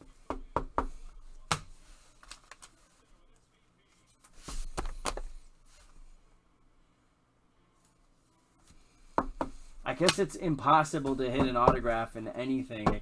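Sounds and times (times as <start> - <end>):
cards rustling: 1.3 - 3.1
cards tapping and clicking: 4.4 - 5.3, 9.2 - 10.4.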